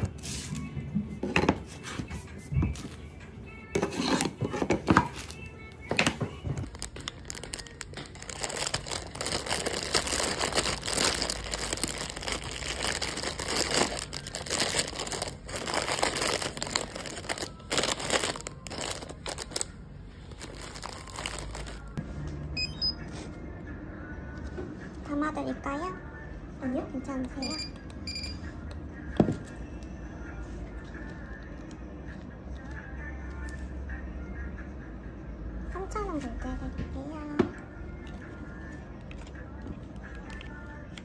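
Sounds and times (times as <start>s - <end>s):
background music: 0.0s - 41.0s
plastic bags crinkling: 6.6s - 22.0s.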